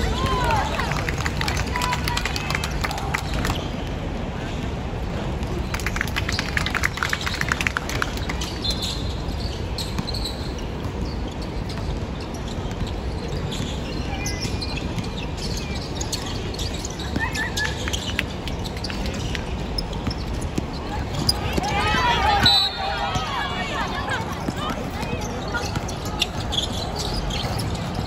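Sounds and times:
sneaker squeaks: 0:08.4 - 0:28.0.

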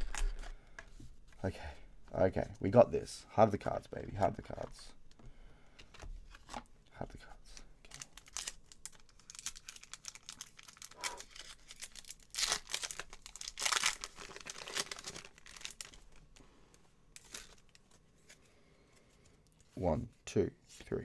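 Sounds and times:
foil wrapper tearing and crinkling: 0:07.9 - 0:16.3, 0:17.2 - 0:17.8.

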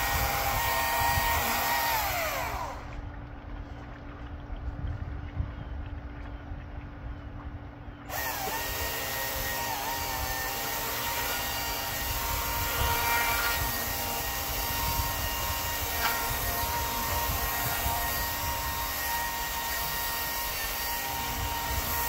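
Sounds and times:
power tool whining: 0:00.0 - 0:03.0, 0:08.1 - 0:22.0.

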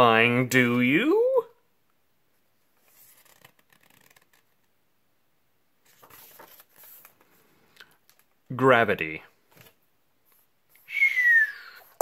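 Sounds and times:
paper page turning: 0:02.8 - 0:04.7, 0:05.8 - 0:08.3.

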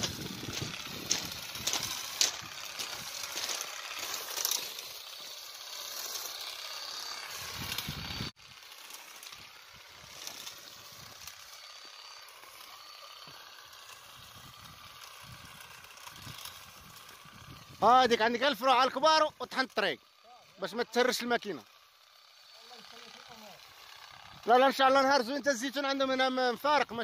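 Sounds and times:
leaves rustling: 0:00.0 - 0:18.3
harvesting rake rattling: 0:00.0 - 0:27.0.

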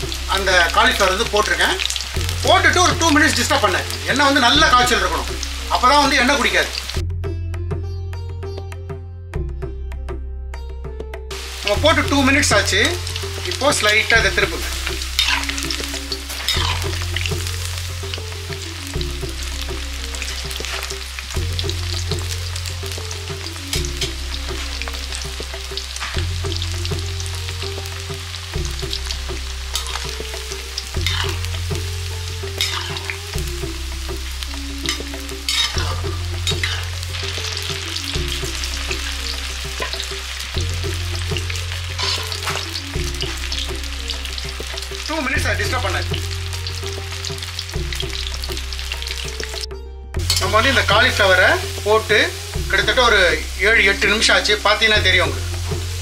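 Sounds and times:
food deep-frying in oil: 0:00.0 - 0:07.0, 0:11.3 - 0:56.0
metal spoon scraping pan: 0:16.4 - 0:16.9, 0:31.0 - 0:31.4, 0:32.6 - 0:33.2, 0:34.9 - 0:37.0, 0:42.0 - 0:42.6.

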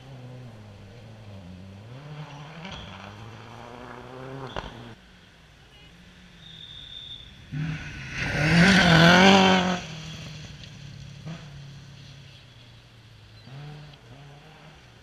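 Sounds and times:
rally car engine revving: 0:00.0 - 0:05.0, 0:07.4 - 0:12.6, 0:13.3 - 0:15.0.

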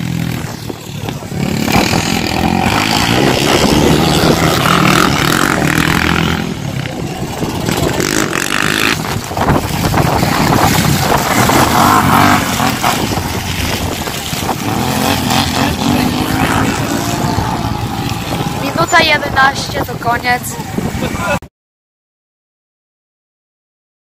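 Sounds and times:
quad engines revving: 0:00.0 - 0:21.4.

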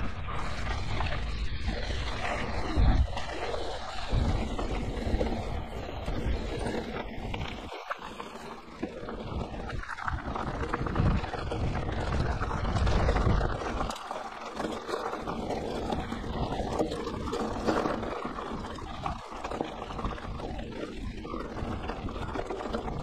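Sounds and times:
wind buffeting microphone: 0:00.0 - 0:23.0
tyres crunching over gravel: 0:00.6 - 0:23.0.

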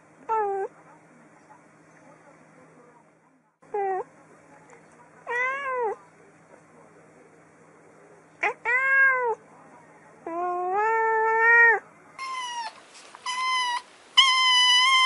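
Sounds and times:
cat meowing: 0:05.3 - 0:06.0, 0:08.4 - 0:09.4, 0:10.3 - 0:15.0
kitten meowing high-pitched: 0:10.9 - 0:15.0.

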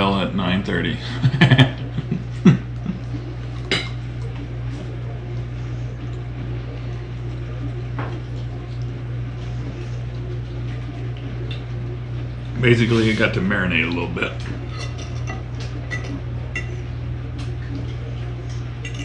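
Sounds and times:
low hum: 0:00.0 - 0:19.0
fork clinking on plate: 0:14.6 - 0:16.8.

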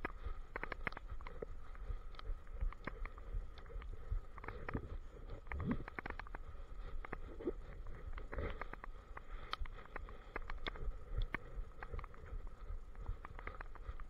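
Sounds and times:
camera clicking and knocking: 0:00.0 - 0:01.3, 0:05.4 - 0:06.4, 0:09.5 - 0:12.2.

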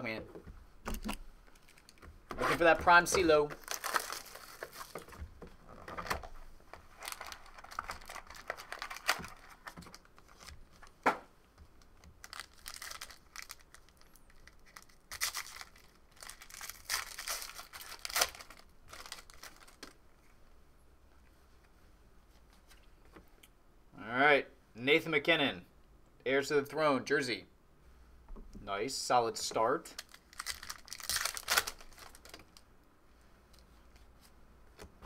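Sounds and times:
foil wrappers tearing and crinkling: 0:02.6 - 0:05.2, 0:06.9 - 0:10.9, 0:12.2 - 0:19.9, 0:30.0 - 0:32.5.

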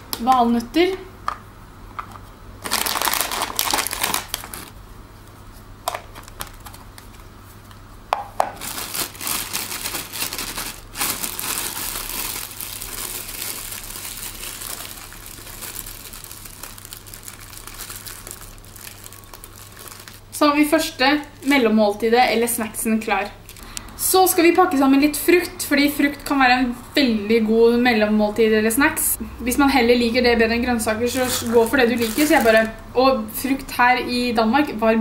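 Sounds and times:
plastic bag crinkling: 0:02.6 - 0:04.8, 0:08.4 - 0:20.2, 0:31.1 - 0:32.9.

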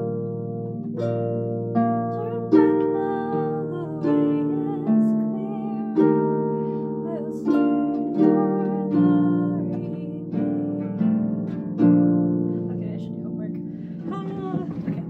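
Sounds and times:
harp plucked chords: 0:00.0 - 0:15.0
woman singing softly: 0:02.1 - 0:06.3, 0:07.0 - 0:11.1, 0:13.5 - 0:15.0.

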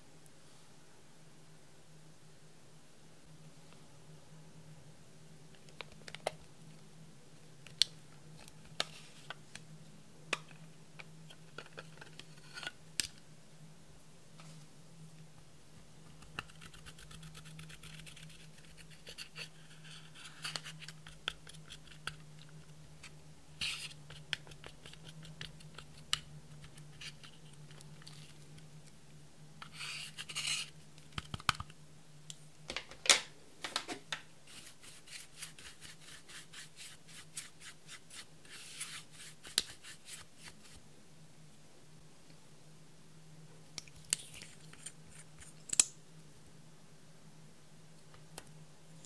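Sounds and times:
low steady hum: 0:00.0 - 0:49.0
spatula scraping powder: 0:29.6 - 0:30.8, 0:34.5 - 0:40.8.

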